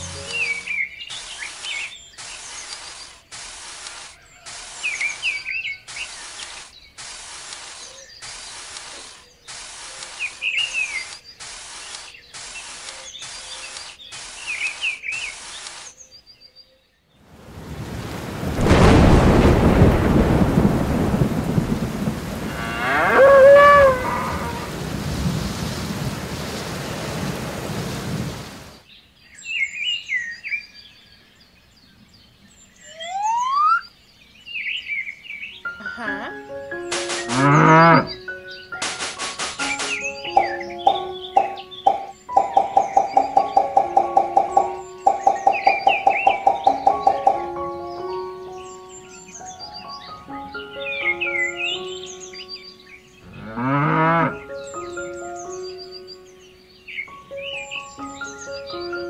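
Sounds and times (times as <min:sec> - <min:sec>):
birds chirping: 0:00.0 - 0:59.0
heavy rain: 0:17.3 - 0:28.9
thunder rumbling: 0:17.4 - 0:28.8
cow mooing: 0:22.5 - 0:24.7, 0:37.3 - 0:38.1, 0:53.4 - 0:54.4.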